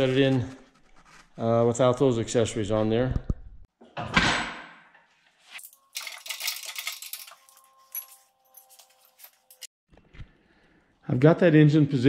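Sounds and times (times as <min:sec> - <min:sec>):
chain clinking and rattling: 0:05.6 - 0:09.7.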